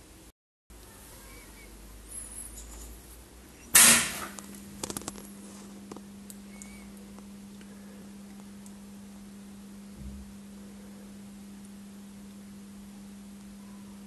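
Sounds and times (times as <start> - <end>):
oscillator low hum: 4.4 - 14.0.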